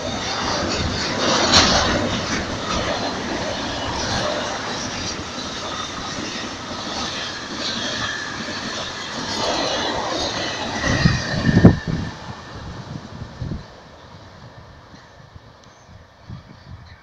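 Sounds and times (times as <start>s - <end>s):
high wheel squeal: 0.0s - 13.5s
train wheels rumbling on rails: 0.0s - 17.0s.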